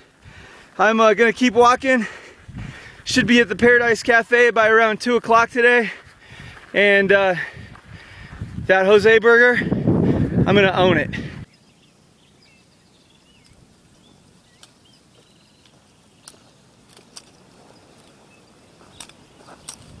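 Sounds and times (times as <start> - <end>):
boots on rocky trail: 5.8 - 8.7, 14.0 - 20.0
faint chirps: 11.4 - 19.8
trekking poles clicking on rock: 14.4 - 20.0.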